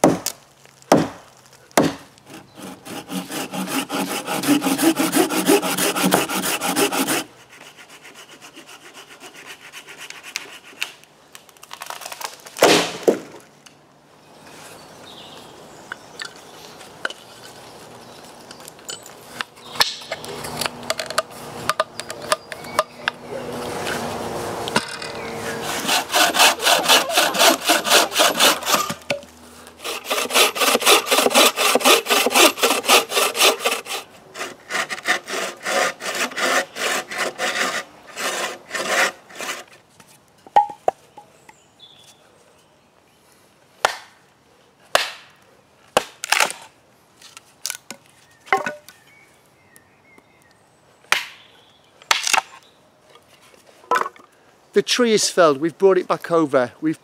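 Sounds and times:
axe splitting firewood: 0:00.0 - 0:07.3, 0:18.5 - 0:23.2, 0:24.7 - 0:39.7
hand saw cutting wood: 0:01.8 - 0:11.0, 0:19.4 - 0:39.8.

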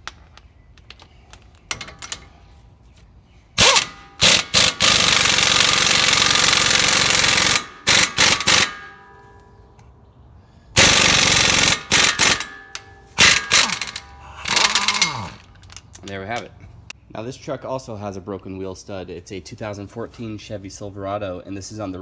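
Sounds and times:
impact wrench hammering: 0:03.6 - 0:09.2, 0:10.8 - 0:15.1.

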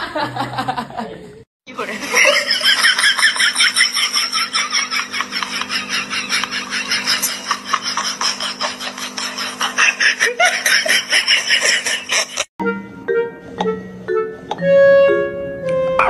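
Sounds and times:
high-pitched laughter: 0:02.1 - 0:12.5.

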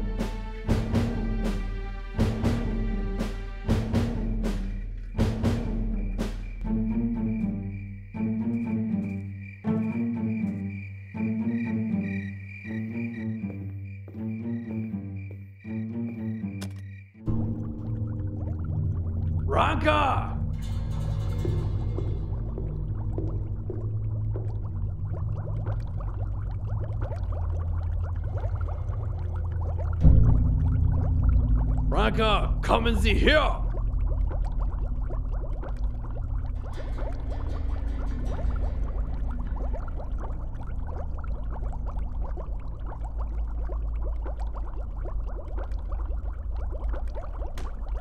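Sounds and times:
liquid bubbling in glassware: 0:17.2 - 0:48.0.

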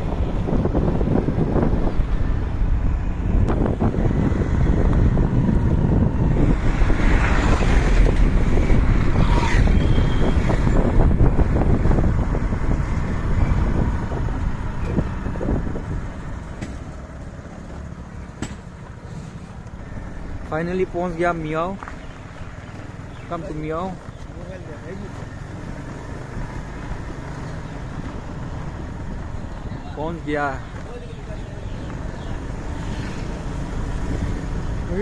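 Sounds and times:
wind rushing over microphone: 0:00.0 - 0:17.2, 0:25.2 - 0:31.0.

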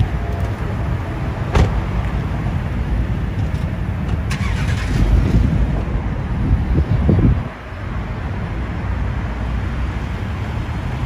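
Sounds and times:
car door shutting: 0:01.5 - 0:01.9.

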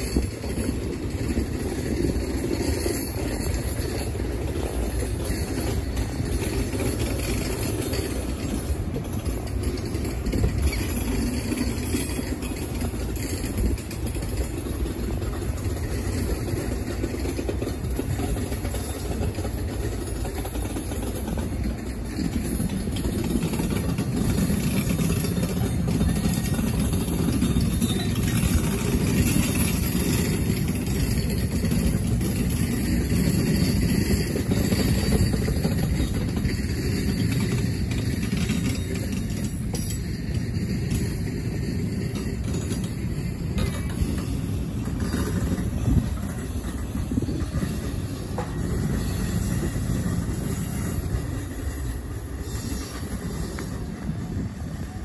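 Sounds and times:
train rumbling past: 0:00.0 - 0:55.0.

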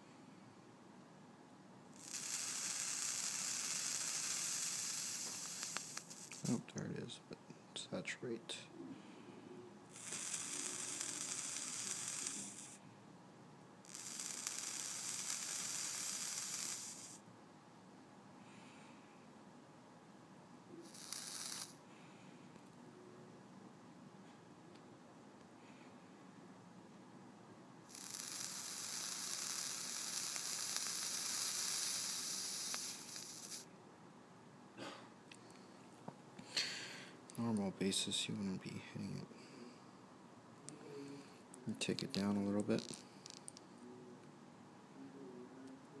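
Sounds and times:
vape coil sizzling: 0:01.9 - 0:06.6, 0:09.9 - 0:12.8, 0:13.8 - 0:17.2, 0:20.8 - 0:21.8, 0:27.9 - 0:33.7, 0:42.6 - 0:43.6.

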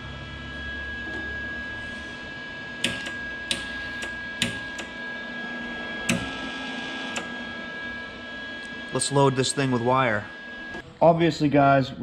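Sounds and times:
welder cooling fan humming: 0:00.0 - 0:12.0.

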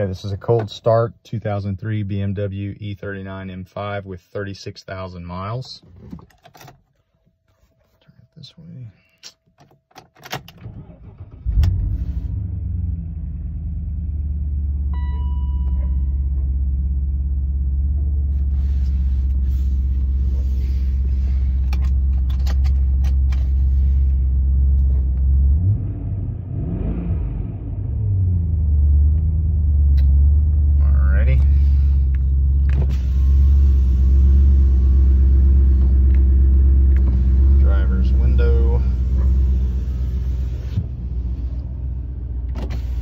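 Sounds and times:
car engine starting and idling: 0:09.6 - 0:43.0
short chime: 0:15.0 - 0:16.2.

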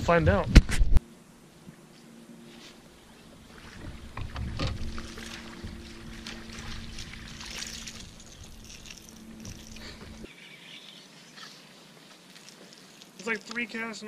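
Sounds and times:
low hum: 0:00.4 - 0:10.3
fish splashing in water: 0:03.4 - 0:10.2.

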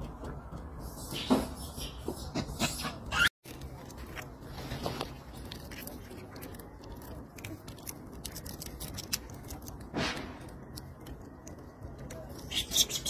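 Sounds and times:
monkey chewing: 0:05.1 - 0:13.0
monkey cracking shells with teeth: 0:05.5 - 0:13.0.

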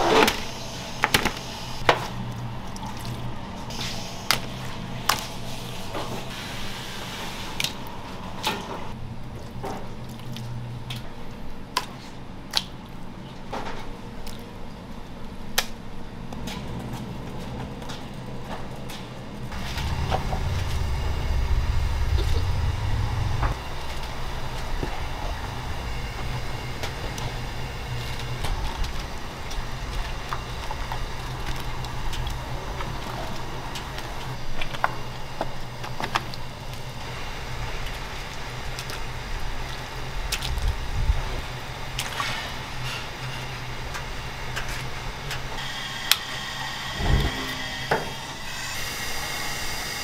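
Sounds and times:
wet handling and water: 0:01.1 - 0:08.6, 0:09.2 - 0:15.2, 0:23.8 - 0:44.0
low hum: 0:19.4 - 0:42.1, 0:46.6 - 0:49.8.

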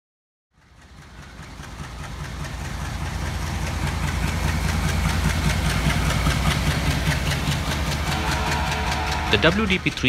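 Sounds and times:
locomotive diesel engine rumbling: 0:00.6 - 0:10.0.

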